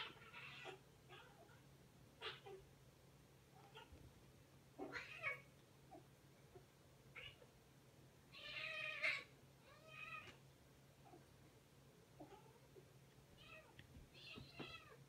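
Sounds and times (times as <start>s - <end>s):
cat crying out: 8.4s - 10.4s.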